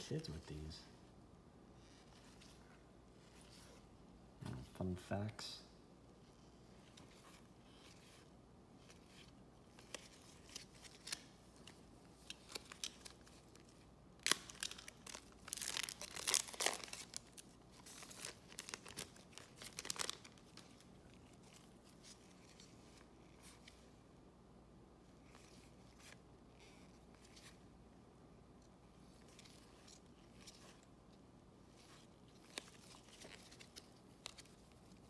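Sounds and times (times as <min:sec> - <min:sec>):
foil wrapper tearing and crinkling: 0:14.2 - 0:20.6.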